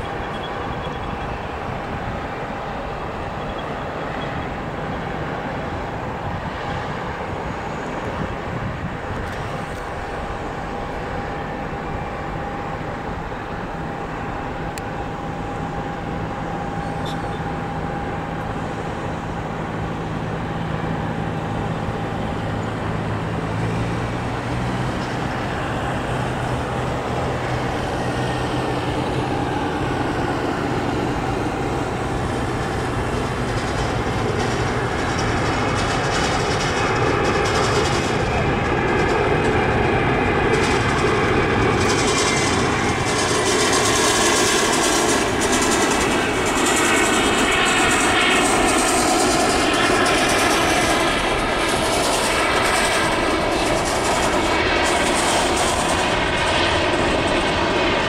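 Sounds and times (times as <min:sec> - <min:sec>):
jet engine noise with whine: 0:00.0 - 0:58.0.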